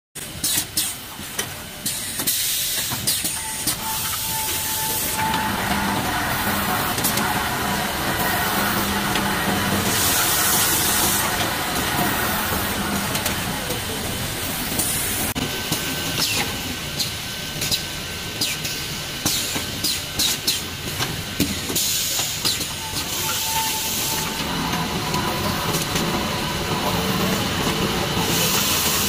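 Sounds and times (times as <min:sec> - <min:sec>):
pneumatic air hiss: 0:00.3 - 0:05.3, 0:18.4 - 0:20.7, 0:21.4 - 0:24.4
machine running: 0:03.1 - 0:29.0.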